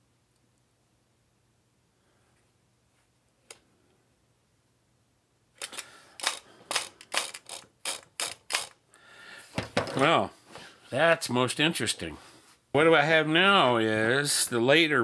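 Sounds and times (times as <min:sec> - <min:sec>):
sharp mechanical clicks: 0:05.6 - 0:08.8.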